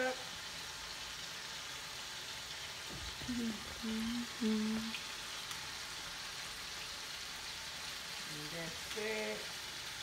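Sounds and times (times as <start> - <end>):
shrimp sizzling in hot oil: 0.0 - 10.0
woman humming low notes: 3.2 - 5.0.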